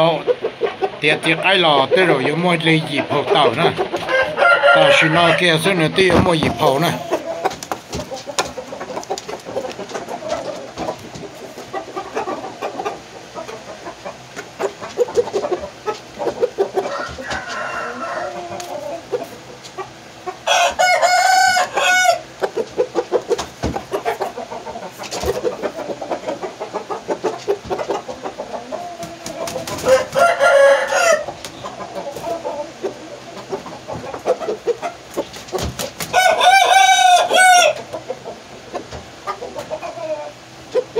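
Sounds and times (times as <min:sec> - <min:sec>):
chicken clucking: 0:00.0 - 0:40.9
rooster crowing: 0:04.0 - 0:05.7, 0:16.8 - 0:19.0, 0:20.4 - 0:22.3, 0:29.0 - 0:31.4, 0:36.1 - 0:37.9.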